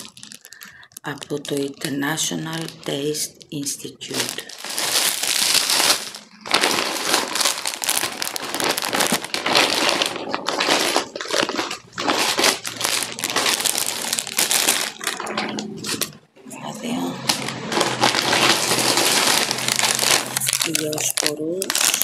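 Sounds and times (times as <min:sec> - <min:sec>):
plastic bag crinkling: 0:00.0 - 0:22.0.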